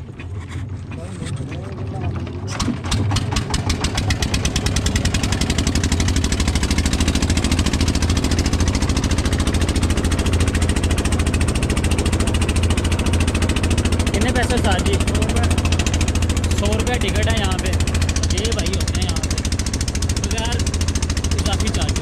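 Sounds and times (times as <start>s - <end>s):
ferry engine knocking: 0.0s - 22.0s.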